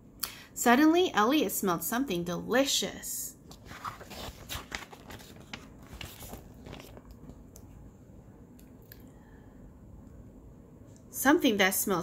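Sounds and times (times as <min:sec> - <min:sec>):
book page turning: 0:03.5 - 0:07.4.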